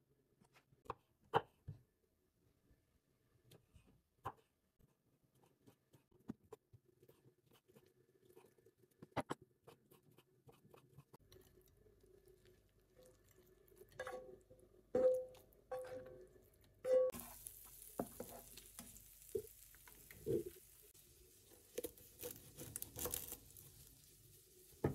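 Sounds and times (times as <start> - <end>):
sausages sizzling in frying pan: 17.1 - 24.9.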